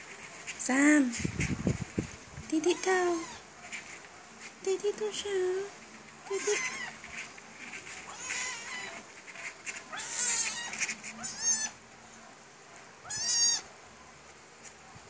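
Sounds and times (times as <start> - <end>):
kitten mewing: 6.2 - 7.0, 9.9 - 11.8, 13.0 - 13.6.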